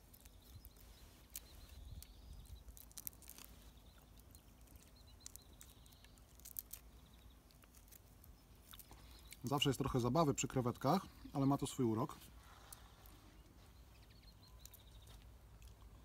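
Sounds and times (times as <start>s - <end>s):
shrimp shell crackling: 0.0s - 9.6s.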